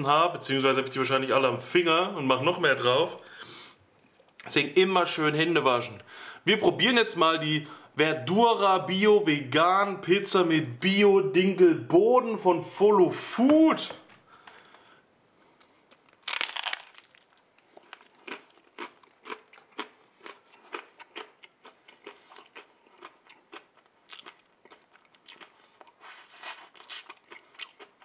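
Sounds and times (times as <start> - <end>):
crisp chewing: 15.4 - 28.0
crunchy bite into pizza: 15.6 - 28.0.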